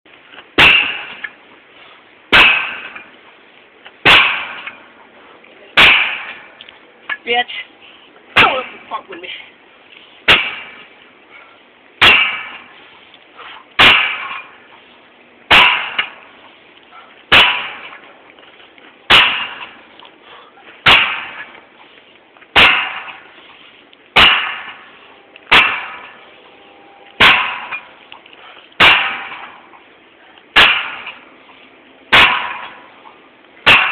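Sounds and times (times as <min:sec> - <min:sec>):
metal bar clanging on tire rim: 0:00.6 - 0:01.4, 0:13.8 - 0:14.6, 0:15.5 - 0:16.4, 0:17.3 - 0:18.2, 0:19.1 - 0:19.9, 0:24.2 - 0:26.3, 0:27.0 - 0:28.0, 0:32.1 - 0:33.9.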